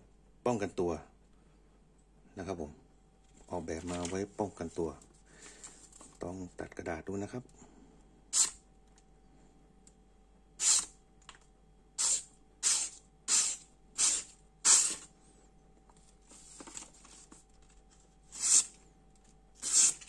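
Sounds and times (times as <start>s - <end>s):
paper rustling: 3.3s - 4.6s, 5.4s - 6.2s, 15.9s - 18.8s
knife slicing paper: 12.0s - 15.1s, 18.3s - 18.8s, 19.6s - 20.0s.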